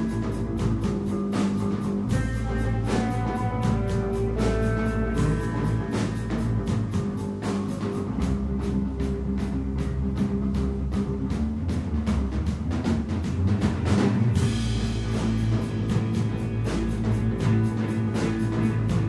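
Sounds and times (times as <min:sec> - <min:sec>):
electric guitar: 0:00.0 - 0:11.9, 0:13.2 - 0:19.0
bass guitar: 0:00.0 - 0:19.0
drum kit hits: 0:11.2 - 0:19.0.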